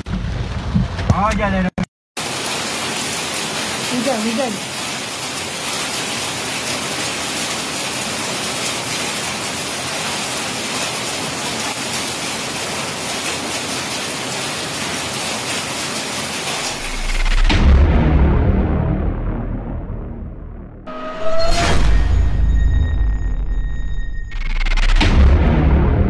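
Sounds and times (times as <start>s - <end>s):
rain and hail on metal roof: 2.2s - 17.5s
deep boom: 16.8s - 26.0s.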